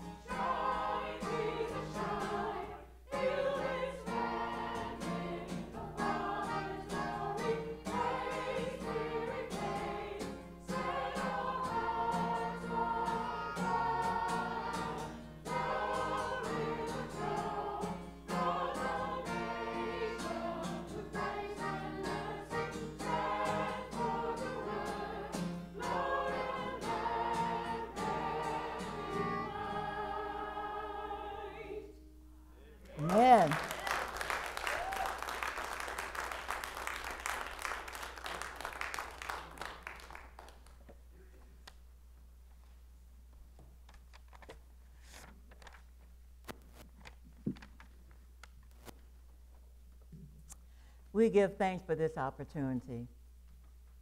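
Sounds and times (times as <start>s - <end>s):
church choir singing: 0.0s - 32.0s.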